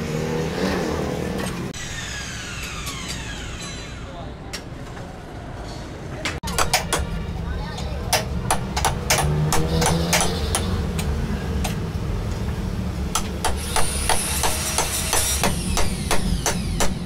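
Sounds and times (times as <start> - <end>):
hammer blows: 8.1 - 11.1.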